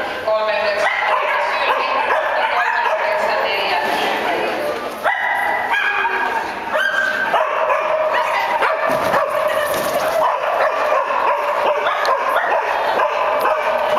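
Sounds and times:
dog yipping and barking: 5.1s - 13.7s.

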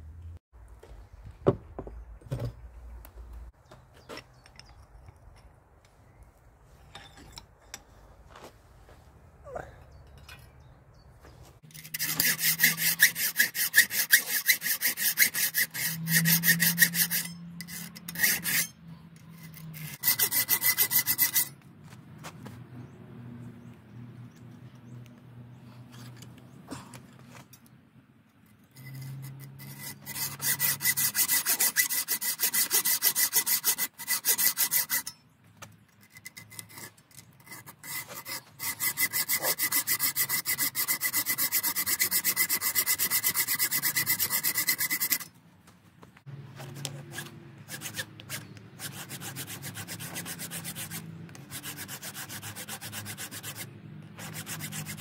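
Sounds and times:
hacksaw cutting steel: 11.6s - 21.6s, 28.6s - 35.2s, 35.8s - 45.4s, 46.7s - 55.0s
file rasping on steel: 11.7s - 21.6s, 28.6s - 35.2s, 36.0s - 45.3s, 46.7s - 55.0s.

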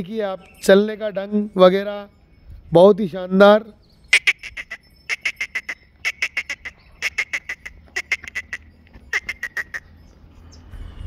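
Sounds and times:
bird calling in bursts: 3.8s - 10.7s.

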